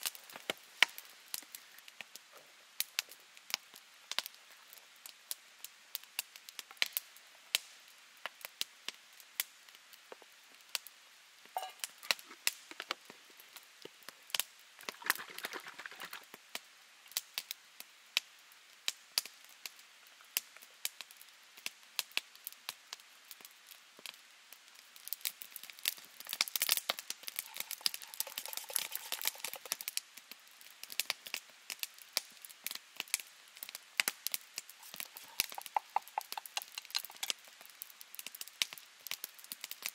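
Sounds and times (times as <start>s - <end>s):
wood fire crackling and popping: 0.0s - 17.6s, 20.4s - 39.9s
steel cup handling: 11.6s - 12.4s, 27.4s - 29.8s, 34.8s - 37.3s
plastic containers handled: 14.9s - 16.2s, 27.4s - 29.8s, 34.8s - 37.3s.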